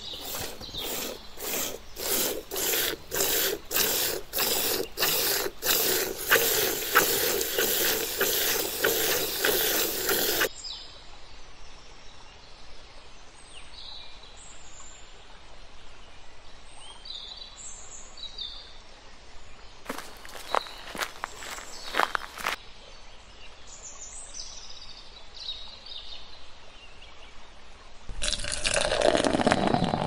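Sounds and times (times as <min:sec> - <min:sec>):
scratchy hissing with fast ticks: 0:00.0 - 0:10.5, 0:19.9 - 0:22.6.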